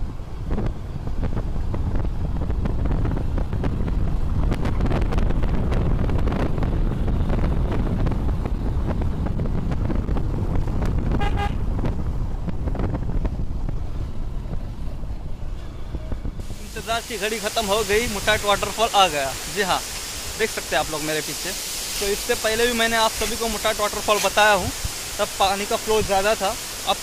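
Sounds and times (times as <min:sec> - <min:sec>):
wind buffeting microphone: 0:00.0 - 0:20.9
short horn toot: 0:11.2 - 0:11.6.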